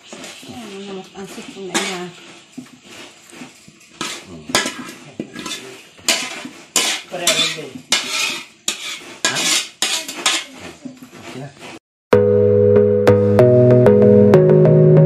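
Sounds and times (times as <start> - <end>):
metal spoon scraping a wok: 0.0 - 11.8.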